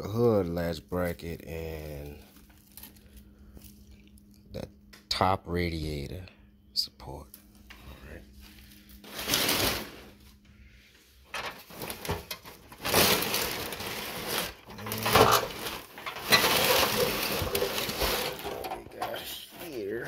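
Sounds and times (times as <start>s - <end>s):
paper and cardboard rustling: 8.5s - 10.2s, 11.4s - 19.9s.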